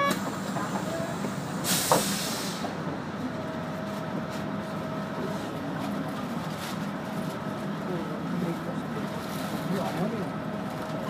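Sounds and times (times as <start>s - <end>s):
bus engine and road noise: 0.0s - 11.0s
burst of hiss: 1.6s - 2.7s.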